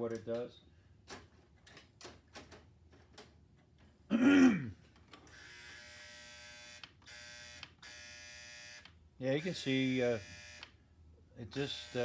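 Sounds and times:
toy train motor buzzing: 5.3 - 10.7.

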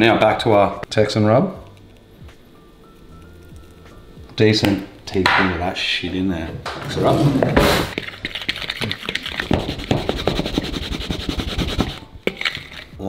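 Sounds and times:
fork whisking in plastic bowl: 7.9 - 12.9.

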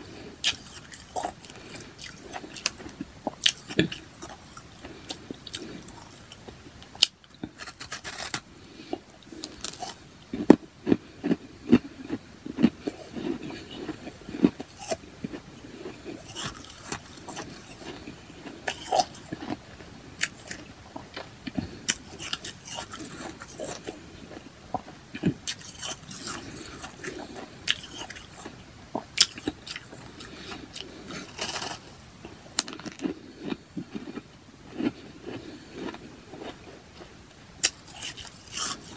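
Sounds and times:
person crunching ice: 7.0 - 8.5, 9.3 - 19.6, 25.4 - 28.5, 29.2 - 31.9, 37.6 - 38.9.

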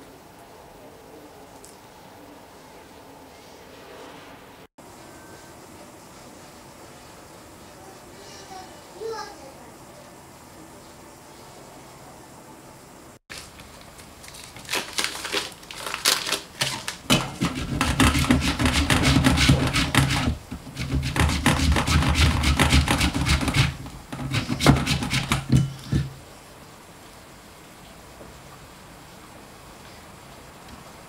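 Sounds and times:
margarine scraped on metal grater: 16.6 - 26.1.

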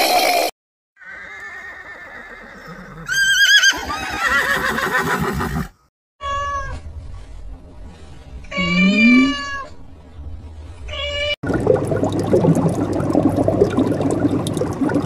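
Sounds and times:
horse whinnying: 1.0 - 5.7
cat meowing: 8.5 - 9.7.

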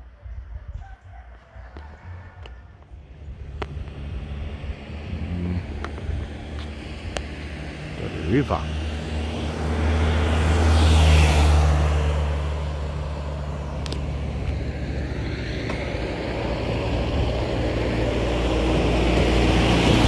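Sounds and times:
vehicle approaching: 0.7 - 20.0
vehicle engine hum passing: 0.8 - 20.0.

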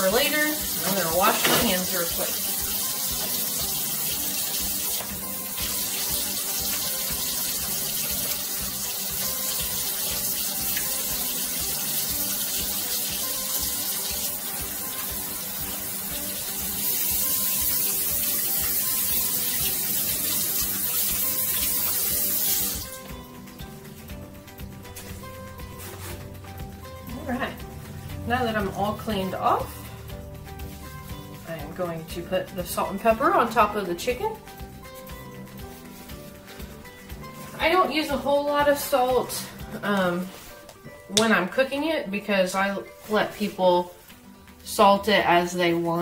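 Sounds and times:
faucet running into sink: 0.0 - 23.2.

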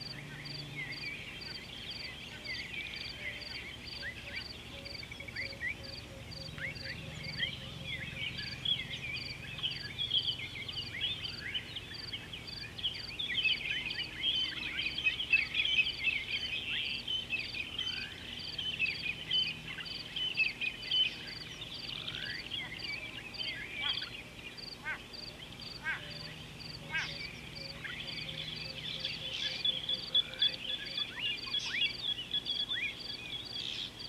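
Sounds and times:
chorus of birds chirping: 0.0 - 34.0.

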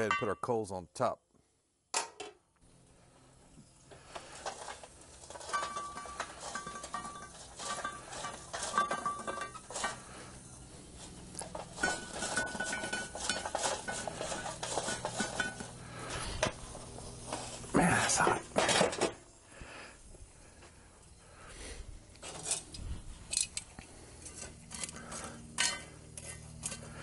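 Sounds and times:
ringing metal tones: 0.0 - 0.5
charcoal clattering on metal lid: 4.3 - 10.2, 11.4 - 16.6, 25.6 - 26.0.

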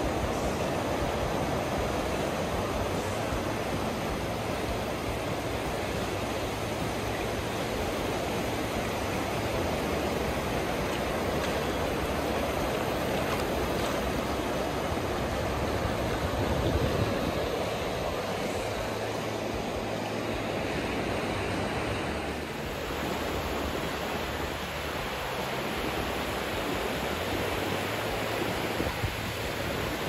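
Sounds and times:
gentle surf on sandy beach: 0.0 - 30.0.

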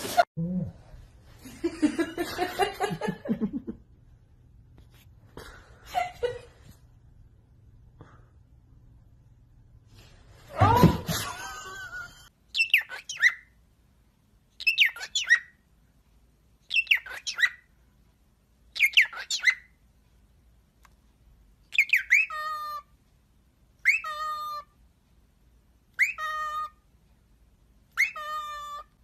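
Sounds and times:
cockatiel chirping whistles: 12.6 - 13.5, 14.6 - 15.6, 16.7 - 17.7, 18.8 - 19.7, 21.7 - 22.8, 23.8 - 24.6, 26.0 - 26.7, 27.9 - 28.8.

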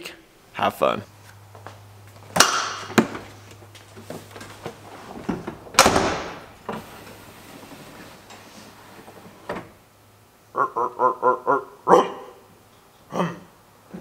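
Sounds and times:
car door slamming shut: 5.7 - 6.6.

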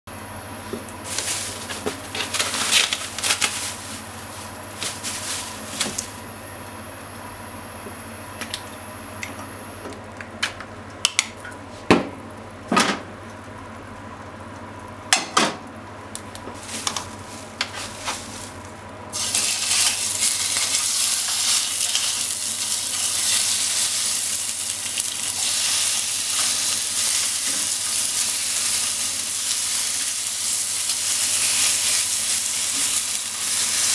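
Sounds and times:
bacon sizzling in frying pan: 15.9 - 33.9.

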